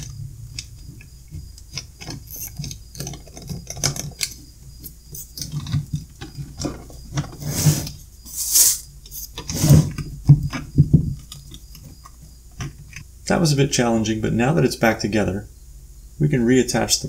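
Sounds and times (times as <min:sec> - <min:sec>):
plastic battery cases scraping: 0:00.0 - 0:13.0
thumps: 0:00.0 - 0:13.0.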